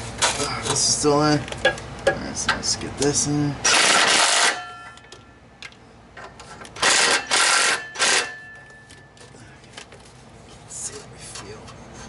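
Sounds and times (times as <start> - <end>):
noisy bursts on exhaust pipe: 3.6 - 4.8, 6.8 - 8.5
faint metallic ringing: 4.5 - 5.5, 7.8 - 9.2.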